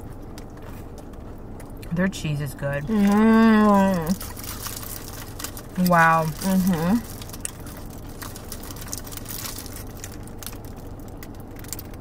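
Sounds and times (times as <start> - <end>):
people chewing: 0.0 - 2.0, 2.7 - 12.0
steady low hum: 0.0 - 12.0
foil wrapping crinkling: 2.8 - 12.0.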